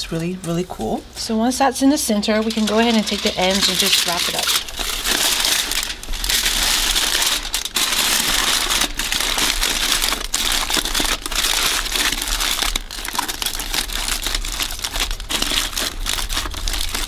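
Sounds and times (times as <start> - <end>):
aluminium foil crinkling: 2.1 - 17.0.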